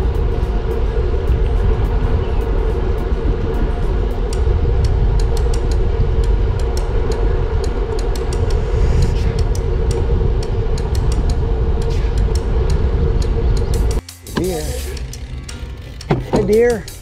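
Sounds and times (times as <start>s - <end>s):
wind buffeting microphone: 0.0s - 14.0s
constant hum: 0.0s - 16.9s
light ticks: 3.0s - 17.0s.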